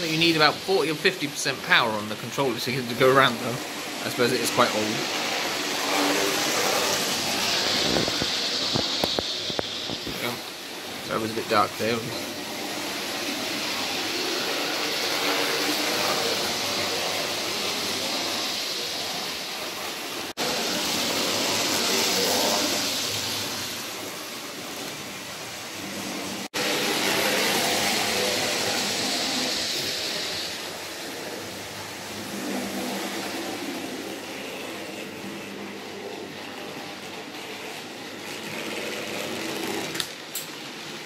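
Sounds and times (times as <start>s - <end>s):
model trains whirring on track: 0.0s - 41.0s.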